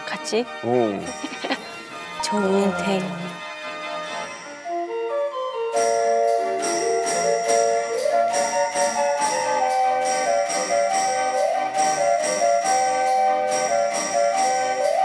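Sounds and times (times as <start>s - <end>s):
mechanical organ melody: 1.0s - 15.0s
bell and tambourine percussion: 5.7s - 15.0s.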